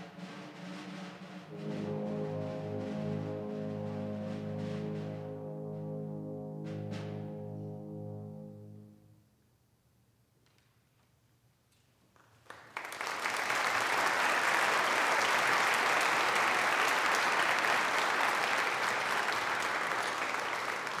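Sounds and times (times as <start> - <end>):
audience applause: 12.4 - 21.0.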